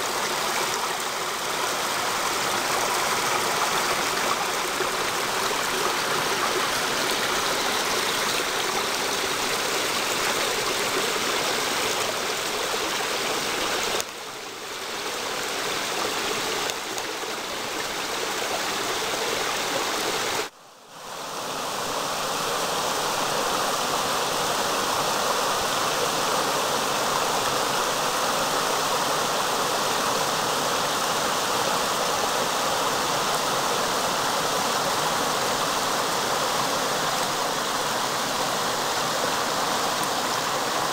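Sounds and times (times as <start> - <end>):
creek babbling over rocks: 0.0 - 20.5, 21.1 - 40.9.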